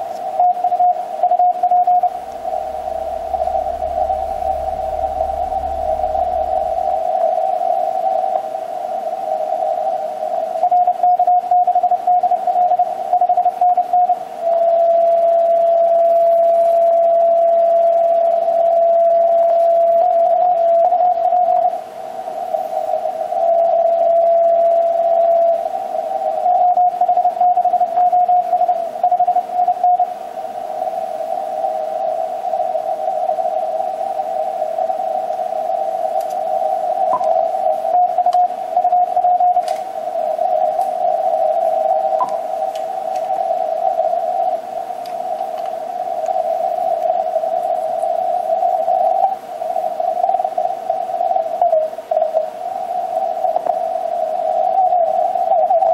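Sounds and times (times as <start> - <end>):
radio hiss and static crackles: 0.0 - 55.9
morse code tones: 37.1 - 37.4, 42.2 - 42.5.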